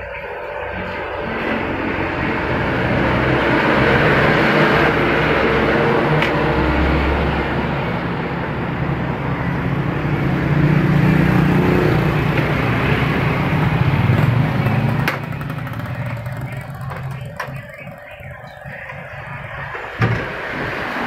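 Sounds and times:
motor scooter engine revving: 10.0s - 19.7s.

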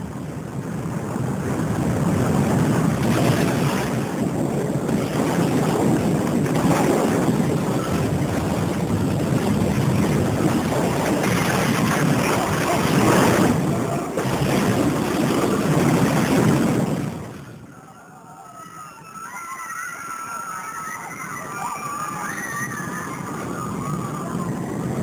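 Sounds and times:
wind: 0.0s - 25.0s
rushing water: 9.7s - 17.5s.

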